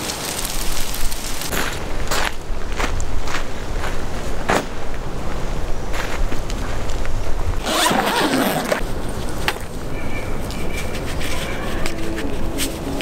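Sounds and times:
zipper being pulled: 0:07.6 - 0:08.8.

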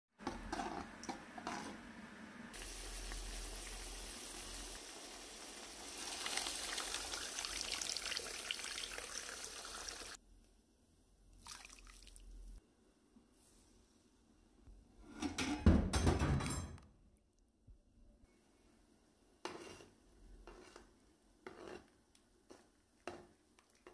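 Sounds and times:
spoon scraping in a pot: 0:00.2 - 0:01.8, 0:19.4 - 0:23.9
water pouring into a pot: 0:02.5 - 0:10.2, 0:11.4 - 0:12.3.

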